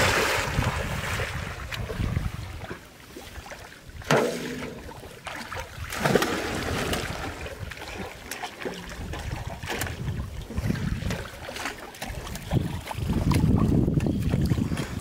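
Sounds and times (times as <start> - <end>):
wind on microphone: 0.0 - 2.8, 8.8 - 15.0
water splashing and sloshing: 0.0 - 15.0.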